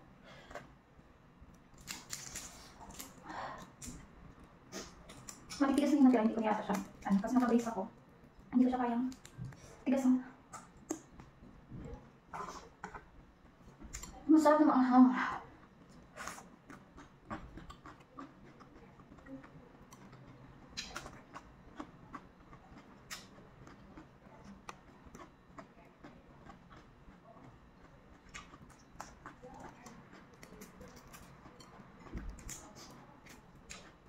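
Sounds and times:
chewing crunchy cucumber: 0:01.5 - 0:09.6, 0:15.6 - 0:34.0.

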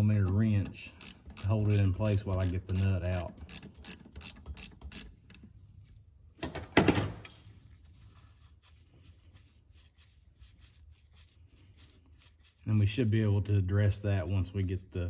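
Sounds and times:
ratchet wrench clicking: 0:01.0 - 0:05.5.

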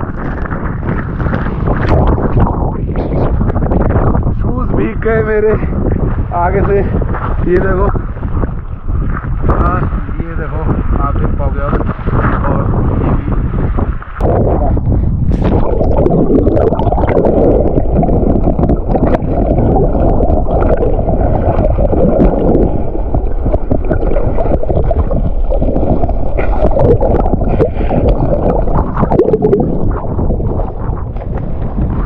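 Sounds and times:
underwater water churning: 0:00.0 - 0:04.3, 0:11.7 - 0:32.0.

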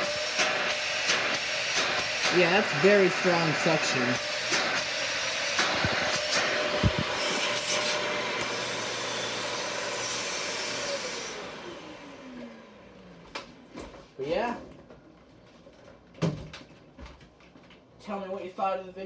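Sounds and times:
vacuum cleaner running: 0:00.0 - 0:14.5.

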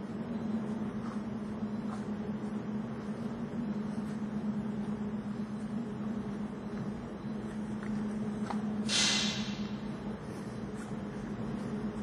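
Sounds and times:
low mechanical hum: 0:00.0 - 0:12.0
even hiss: 0:08.9 - 0:09.8.

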